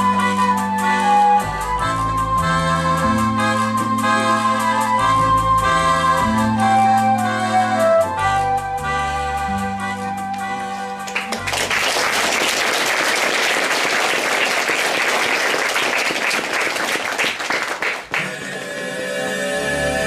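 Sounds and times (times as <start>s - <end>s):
music: 0.0s - 13.5s, 17.8s - 20.0s
audience applauding: 11.0s - 19.3s.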